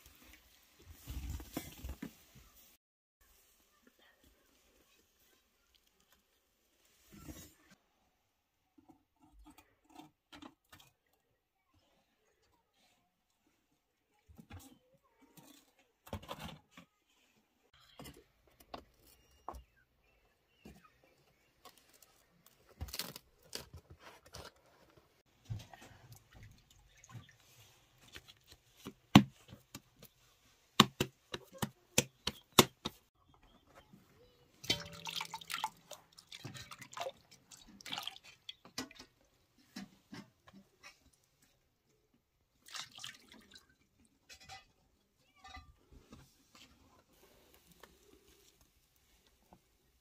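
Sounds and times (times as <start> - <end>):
dough knocks and handling: 28.1 - 33.2
water dripping into metal bowl: 34.6 - 39.1.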